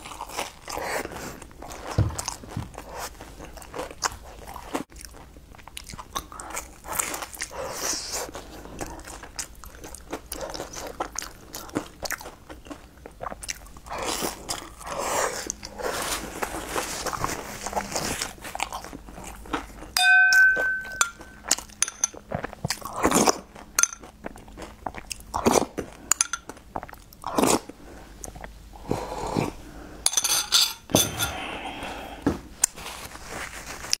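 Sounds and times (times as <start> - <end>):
chewing and wet mouth noises: 0.0 - 20.0, 21.2 - 29.6
glass bowl ringing clink: 20.0 - 22.2
spoon clicks: 20.0 - 22.2.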